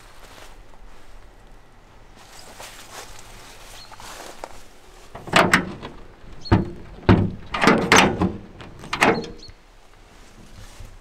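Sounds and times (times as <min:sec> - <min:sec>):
metal door clunking and rattling: 0:05.1 - 0:09.5.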